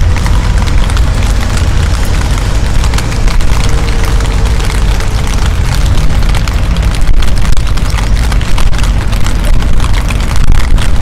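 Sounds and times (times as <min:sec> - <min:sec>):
rain spattering: 0:00.0 - 0:11.0
wind buffeting microphone: 0:00.0 - 0:11.0.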